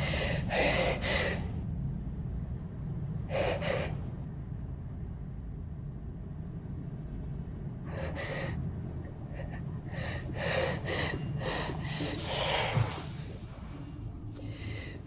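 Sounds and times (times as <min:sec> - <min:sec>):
steady low rumble: 0:00.0 - 0:15.0
woman gasping breaths: 0:07.9 - 0:15.0.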